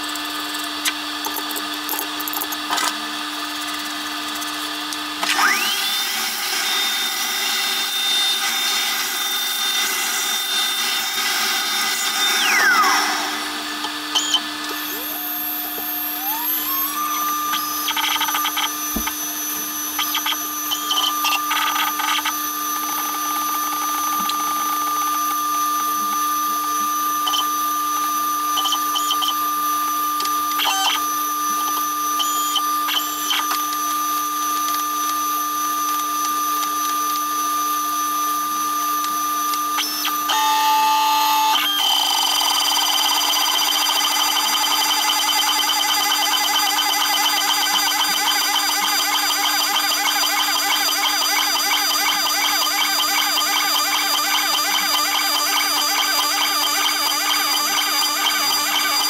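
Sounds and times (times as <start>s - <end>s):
router motor whine: 0.0s - 59.0s
steady hum: 11.5s - 20.0s.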